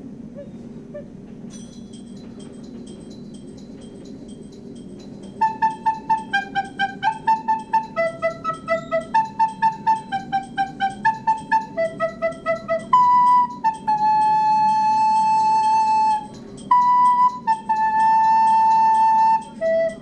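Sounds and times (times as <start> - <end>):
recorder playing: 5.3 - 20.0.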